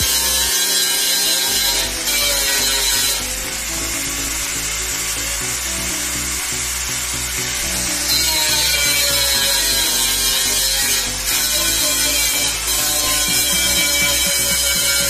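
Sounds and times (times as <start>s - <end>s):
angle grinder on steel: 0.0s - 15.0s
background music: 0.0s - 15.0s.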